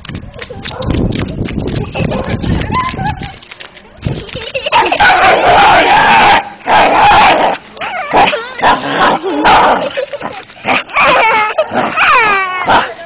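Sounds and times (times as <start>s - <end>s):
dog yipping and whining: 11.0s - 12.7s.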